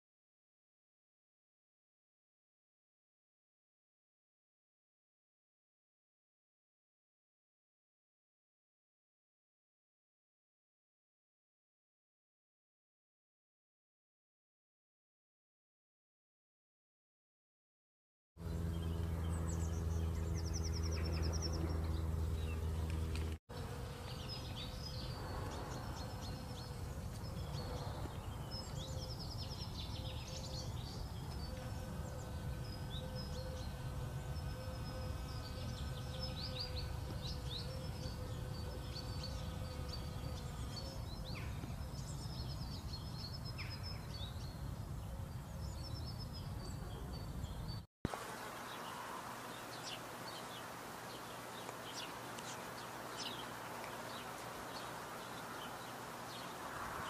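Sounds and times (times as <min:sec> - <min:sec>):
bees buzzing: 0:18.4 - 0:28.8, 0:29.6 - 0:41.8, 0:48.1 - 0:57.0
birds chirping: 0:18.4 - 0:57.0.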